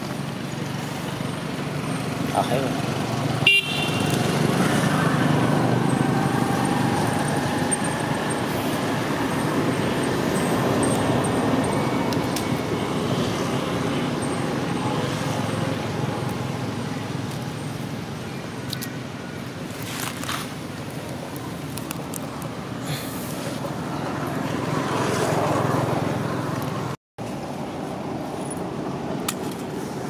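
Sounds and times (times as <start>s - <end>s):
road traffic passing: 0.0s - 30.0s.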